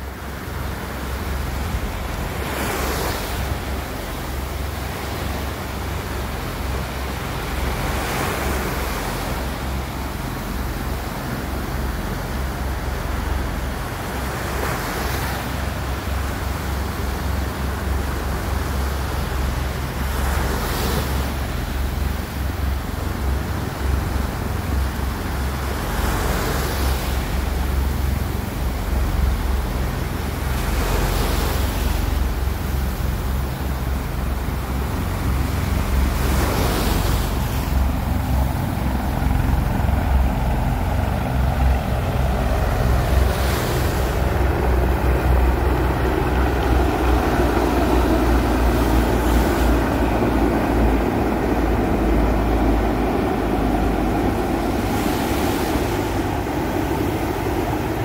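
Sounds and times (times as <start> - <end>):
breaking surf: 0.0 - 58.0
helicopter rotors and engines: 0.0 - 58.0
wind buffeting microphone: 33.2 - 58.0.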